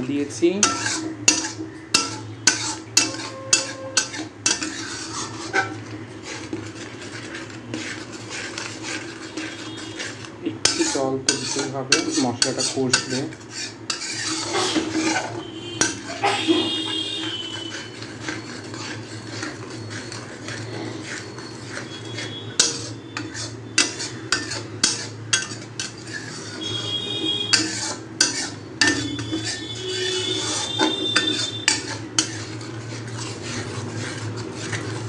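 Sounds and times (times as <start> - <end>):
metal spatula scraping metal pan: 0.0 - 35.0
metal squeaks: 1.7 - 35.0.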